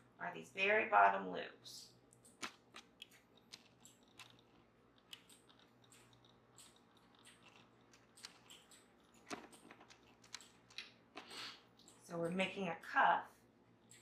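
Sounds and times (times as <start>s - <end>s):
knitting loom clicks and rustles: 2.3s - 12.1s.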